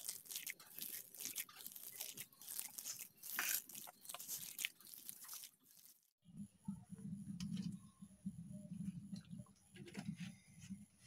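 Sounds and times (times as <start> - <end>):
hand squelching paste in steel bowl: 0.0 - 6.0.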